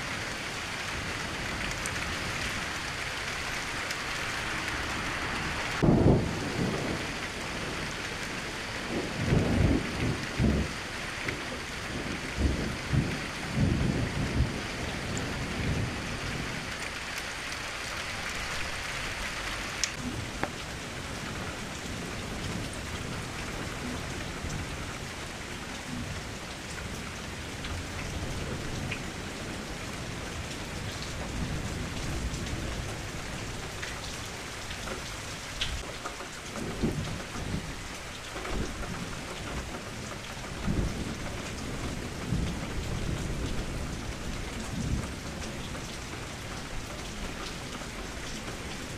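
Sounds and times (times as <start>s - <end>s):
steady rain falling: 0.0s - 48.9s
low rolls of thunder: 5.8s - 16.7s, 38.5s - 46.4s.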